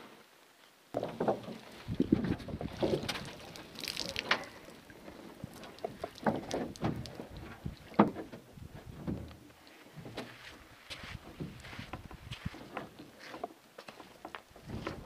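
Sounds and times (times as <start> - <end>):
canoe gear knocks and clatter: 1.0 - 4.5, 5.6 - 9.4.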